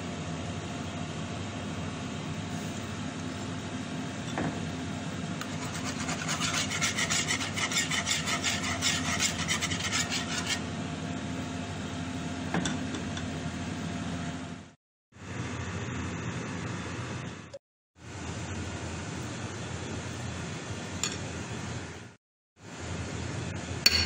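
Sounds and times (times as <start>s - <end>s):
steady low hum: 0.0s - 24.0s
whisk scraping iron pan: 5.4s - 10.6s.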